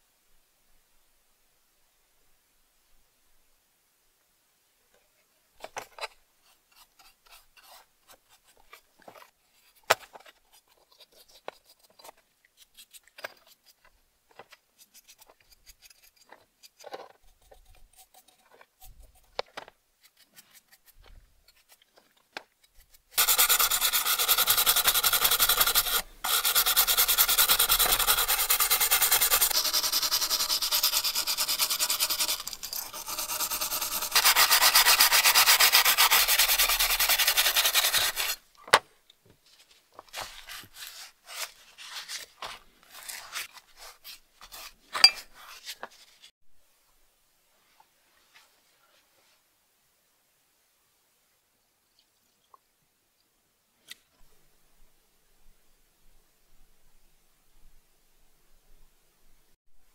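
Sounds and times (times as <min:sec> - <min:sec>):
hand tool scraping metal: 0:23.1 - 0:38.4.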